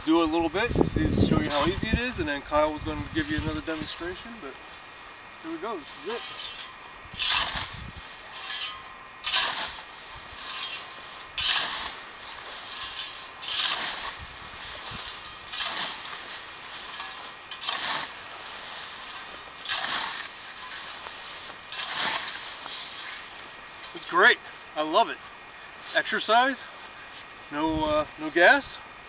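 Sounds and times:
scythe swishing through grass: 3.2 - 24.7.

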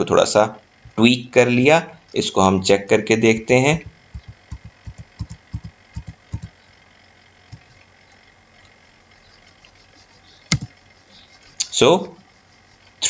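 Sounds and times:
computer keyboard typing: 3.8 - 6.5.

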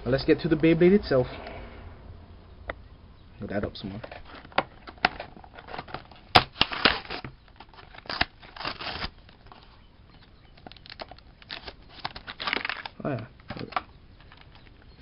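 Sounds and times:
plastic packaging crackling: 4.2 - 9.7, 10.3 - 15.0.

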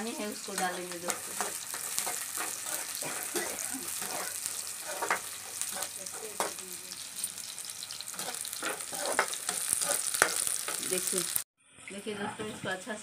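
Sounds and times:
food sizzling in hot oil: 0.0 - 13.0
ladle scraping and clinking on pan: 0.6 - 6.6.

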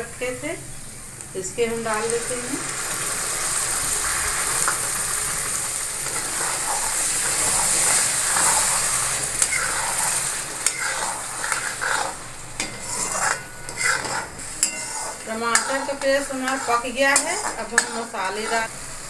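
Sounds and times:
tomato paste sizzling in oil: 0.0 - 19.0
metal spatula scraping pan: 6.0 - 18.8
spatula clicking on pan: 10.6 - 18.0.

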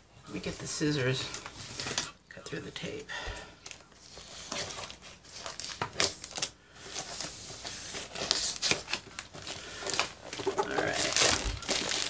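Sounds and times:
plastic bag crinkling: 8.0 - 12.0.

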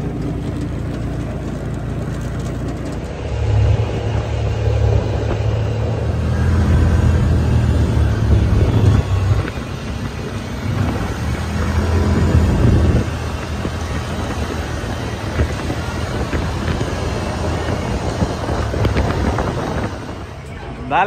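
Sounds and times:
vehicle engine and road noise: 0.0 - 21.0.

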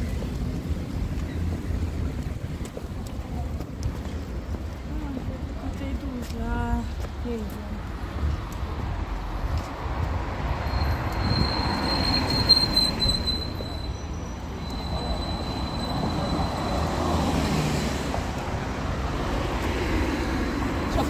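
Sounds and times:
low traffic rumble: 0.0 - 21.0
thin high squeal: 10.7 - 16.8.

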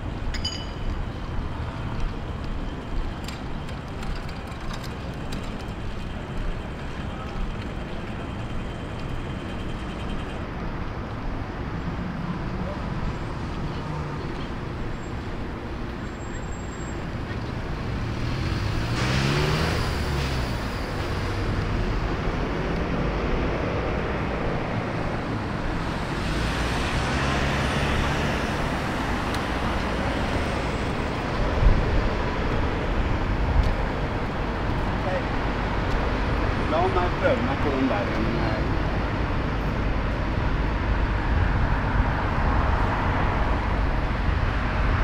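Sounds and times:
passing traffic: 0.0 - 45.0
vehicle accelerating away: 17.8 - 24.6, 25.8 - 30.7.

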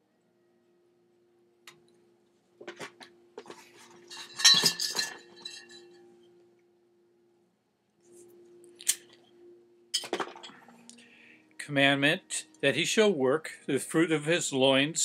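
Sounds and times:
drinking glass clinking: 4.0 - 6.1, 10.0 - 10.8.

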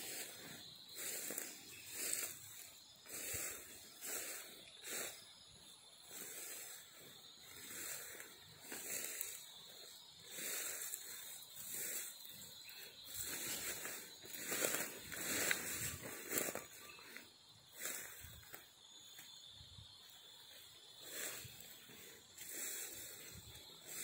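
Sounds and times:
rustling through leafy ground cover: 0.0 - 5.1, 7.7 - 18.6
person breathing: 0.1 - 5.2, 6.1 - 16.6, 21.0 - 24.0.

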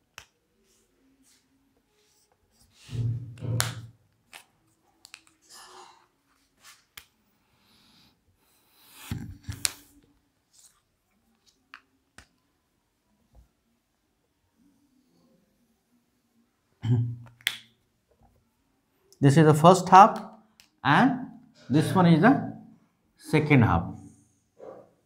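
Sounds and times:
marker scraping on whiteboard: 2.0 - 4.4, 8.7 - 9.8
marker caps clicking: 3.4 - 5.5, 17.2 - 17.7.

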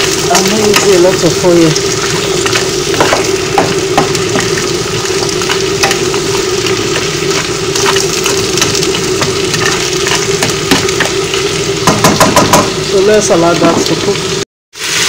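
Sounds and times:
vegetables sizzling in oil: 0.0 - 15.0
steady hum: 0.1 - 13.0
wooden spoon scraping a pan: 9.2 - 11.2.

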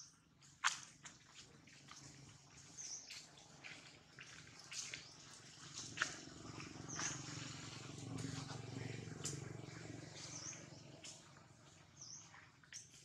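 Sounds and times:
low steady drone: 6.0 - 12.0.

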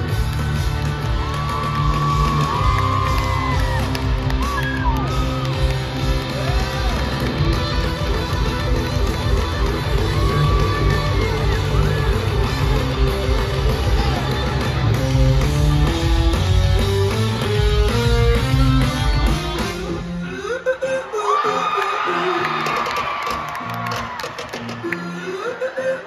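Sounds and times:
live rock band playing: 0.0 - 20.4.

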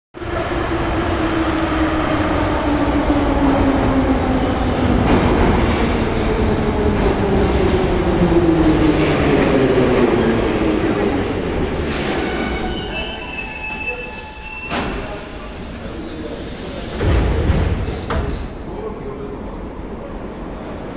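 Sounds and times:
train wheels rumbling on rails: 0.2 - 13.8.

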